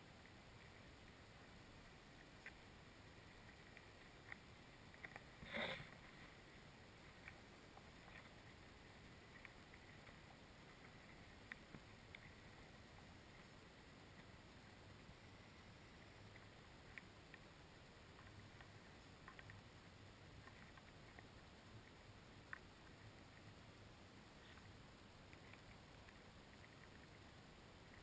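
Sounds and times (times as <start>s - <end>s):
faint underwater clicks: 0.0s - 28.0s.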